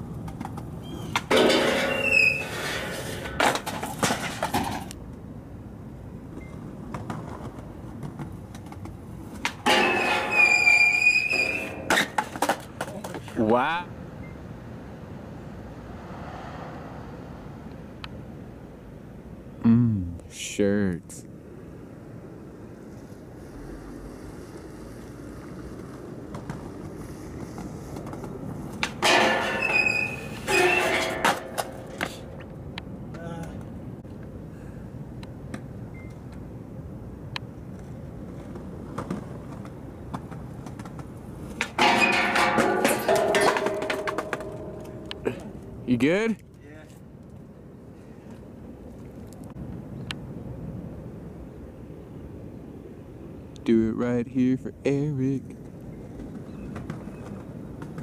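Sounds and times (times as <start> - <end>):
skateboard wheels rolling on concrete: 0.0 - 19.5, 21.1 - 58.0
outdoor background noise: 0.0 - 58.0
skateboard hitting metal handrail: 1.1 - 4.9, 9.4 - 13.2, 28.8 - 32.2, 41.6 - 45.4.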